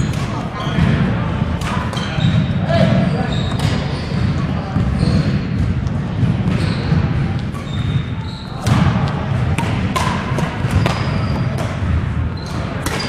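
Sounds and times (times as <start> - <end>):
sneakers squeaking on wooden floor: 0.0 - 9.5, 10.6 - 13.0
echoing voices: 0.0 - 13.0
racket hitting shuttlecock: 1.6 - 2.1, 3.5 - 4.4, 8.6 - 13.0.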